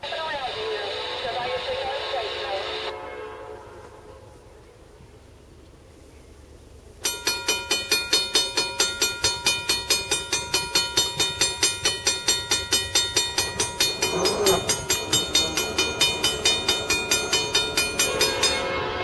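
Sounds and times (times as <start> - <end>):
railroad crossing bell ringing: 7.0 - 19.0.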